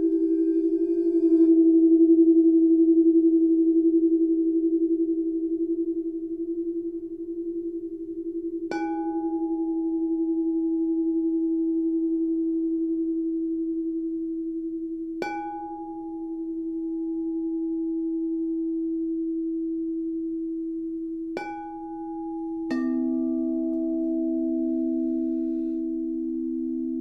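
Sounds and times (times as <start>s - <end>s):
singing bowl struck: 0.0s - 2.2s, 8.7s - 11.5s, 21.4s - 27.0s
singing bowl ringing: 0.0s - 2.7s, 5.6s - 13.4s, 21.4s - 27.0s
lower-pitched bowl struck: 0.0s - 27.0s.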